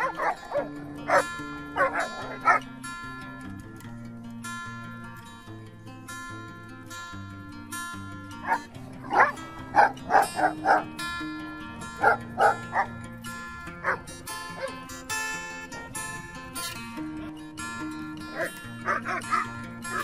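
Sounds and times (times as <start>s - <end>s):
dogs barking: 0.0s - 3.4s, 8.3s - 16.8s, 17.7s - 20.0s
guitar music: 0.0s - 20.0s.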